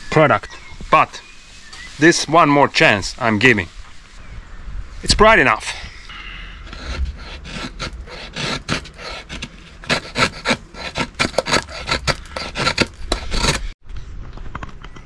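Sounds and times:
knife scraping wood: 0:06.4 - 0:13.8.

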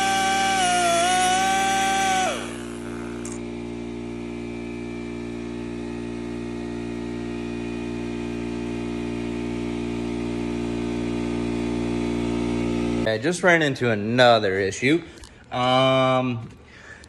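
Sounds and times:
air compressor motor humming: 0:00.0 - 0:13.1.

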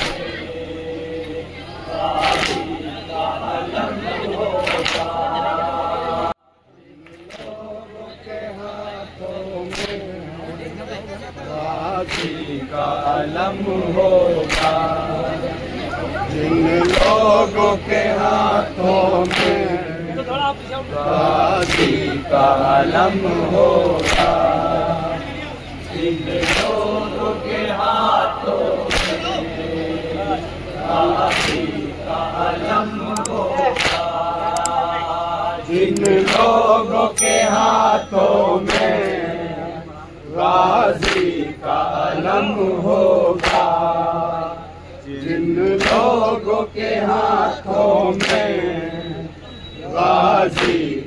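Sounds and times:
loud rhythmic slaps: 0:00.0 - 0:00.3, 0:02.0 - 0:03.0, 0:04.6 - 0:05.2, 0:07.0 - 0:07.6, 0:09.6 - 0:10.2, 0:11.9 - 0:12.6, 0:14.3 - 0:15.0, 0:16.8 - 0:17.2, 0:19.2 - 0:19.8, 0:21.5 - 0:22.1, 0:23.8 - 0:24.7, 0:26.3 - 0:27.1, 0:28.7 - 0:29.4, 0:30.9 - 0:31.9, 0:33.1 - 0:34.8, 0:35.9 - 0:36.6, 0:37.6 - 0:39.3, 0:40.5 - 0:41.6, 0:42.8 - 0:44.0, 0:45.6 - 0:46.3, 0:48.1 - 0:48.7, 0:50.5 - 0:51.0
men chanting in unison: 0:00.0 - 0:51.0.

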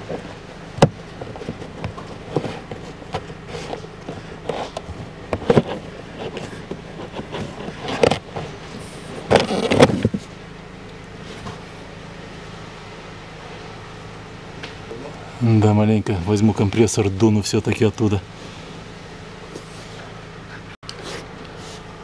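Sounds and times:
filter scraping in plastic housing: 0:01.2 - 0:10.3.

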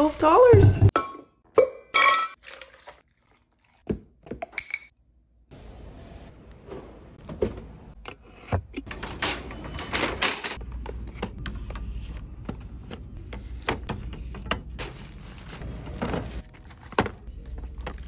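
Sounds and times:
packaged items knocking and rustling: 0:13.7 - 0:18.0.

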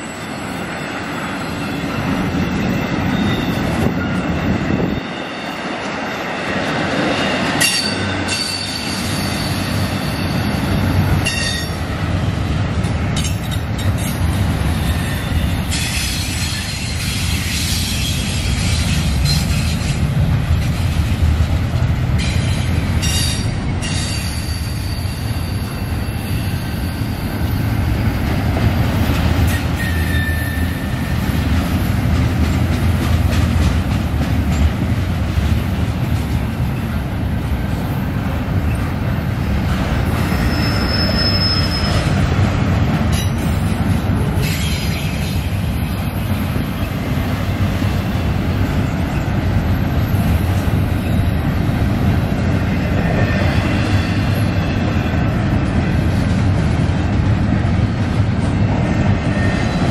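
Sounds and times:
train wheels rumbling on rail: 0:00.0 - 0:59.9
high wheel squeal: 0:01.3 - 0:06.3, 0:07.1 - 0:11.8, 0:22.2 - 0:27.6, 0:29.5 - 0:31.2, 0:40.0 - 0:42.2.

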